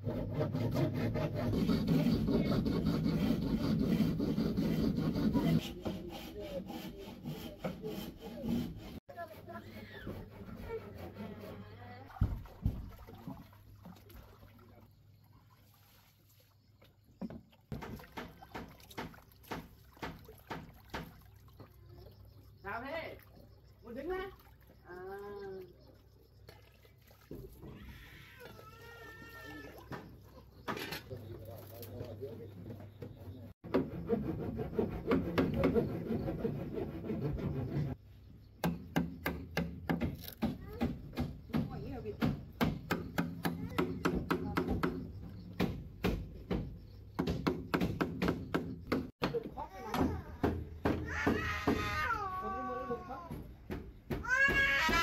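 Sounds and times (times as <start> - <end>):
knife scraping bamboo: 0.0 - 11.8
hands sloshing meat in water: 12.1 - 17.0, 17.6 - 21.8
short splashes: 12.1 - 22.3, 26.4 - 32.2
knife chopping into wood: 38.6 - 51.1
dull knocks: 38.6 - 52.0.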